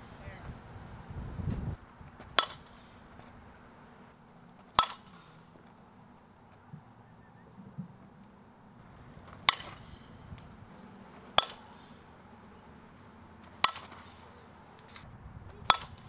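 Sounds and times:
bat striking softballs: 0:02.1 - 0:07.0, 0:08.8 - 0:16.0.

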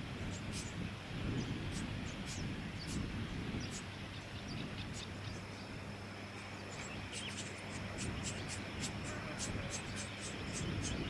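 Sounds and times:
low steady hum: 0:00.0 - 0:11.0
birds giving high chips: 0:06.6 - 0:11.0.

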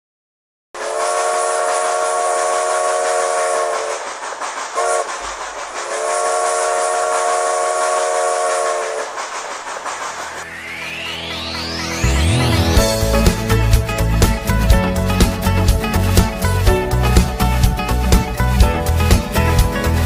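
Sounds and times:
steam locomotive chime whistle: 0:00.8 - 0:04.1, 0:04.8 - 0:05.2, 0:05.8 - 0:09.2
steam hissing: 0:00.8 - 0:12.0
rising sweep: 0:00.8 - 0:18.5.

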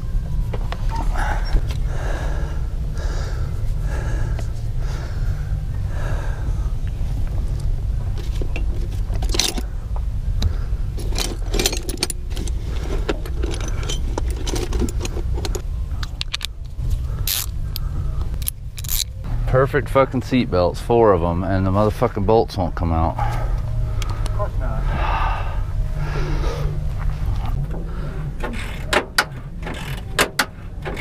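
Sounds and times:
low rumble: 0:00.0 - 0:31.0
metal tools clinking and scraping: 0:08.2 - 0:09.7, 0:11.0 - 0:16.5.

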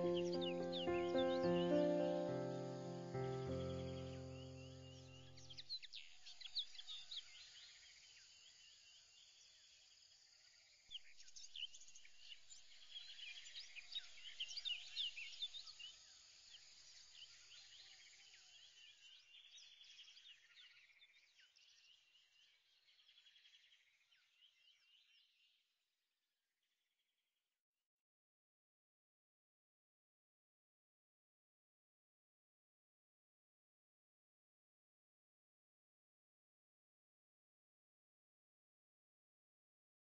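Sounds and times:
birds chirping: 0:00.0 - 0:06.1.

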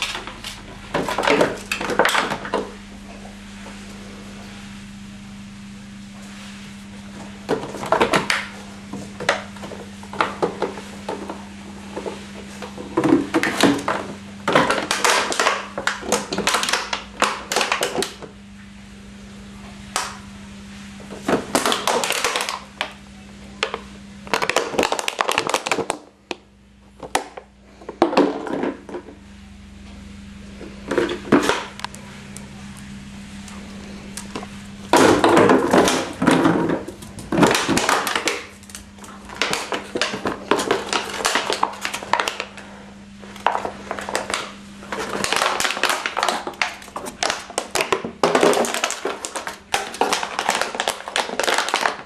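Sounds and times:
dog chewing plastic bottle: 0:12.0 - 0:18.2, 0:21.1 - 0:22.9, 0:23.6 - 0:26.1, 0:34.3 - 0:42.6, 0:43.4 - 0:52.0.

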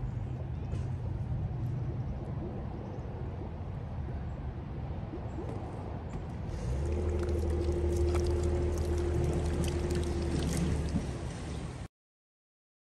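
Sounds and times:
water trickling and dripping: 0:00.1 - 0:11.9
steady motor hum: 0:06.2 - 0:11.9.

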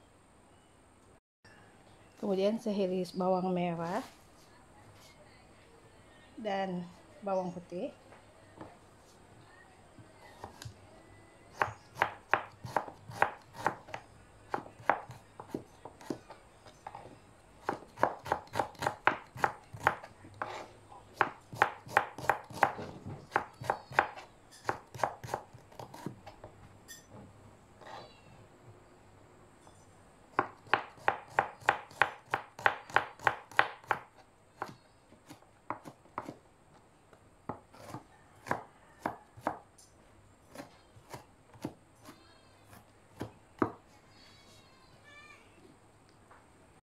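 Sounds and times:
knife chopping on plastic board: 0:11.6 - 0:16.4, 0:17.6 - 0:26.5, 0:30.4 - 0:36.4, 0:37.4 - 0:39.6, 0:40.5 - 0:43.8.

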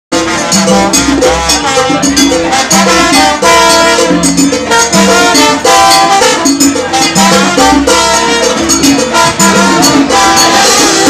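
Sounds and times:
latin band playing salsa: 0:00.1 - 0:11.0
sharp high percussion strokes: 0:00.2 - 0:11.0.

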